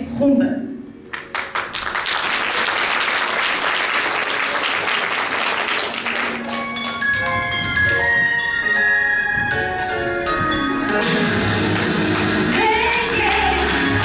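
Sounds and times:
audience applauding: 1.1 - 7.1, 11.5 - 14.0
music with bright repeated notes: 6.4 - 14.0.

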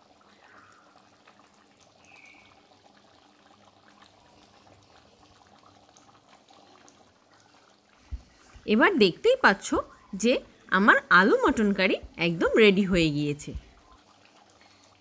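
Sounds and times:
curry bubbling in a pan: 0.0 - 15.0.

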